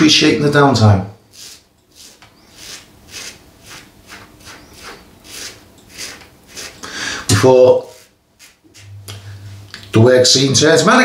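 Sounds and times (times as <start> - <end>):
razor scraping stubble: 1.3 - 9.0.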